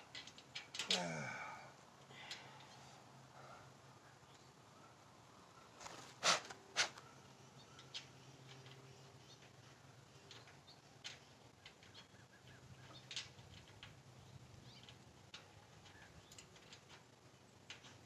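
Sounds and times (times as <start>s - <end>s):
small metallic clicks: 0.0s - 1.2s, 2.1s - 2.9s, 7.6s - 18.0s.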